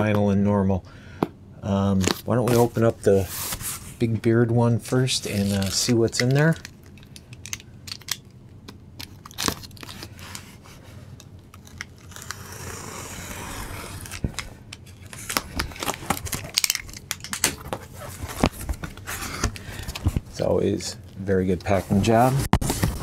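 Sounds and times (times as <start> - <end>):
cardboard and tape tearing: 11.6 - 14.4.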